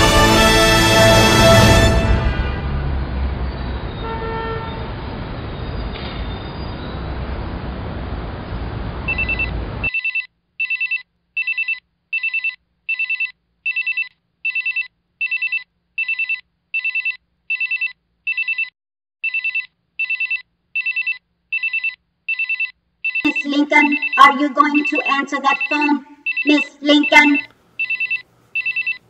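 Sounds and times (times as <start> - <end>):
telephone ringing in trills: 19.3 - 29.0.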